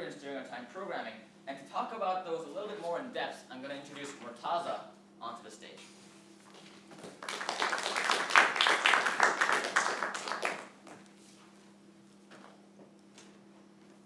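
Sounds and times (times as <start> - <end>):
audience applauding: 7.0 - 10.8.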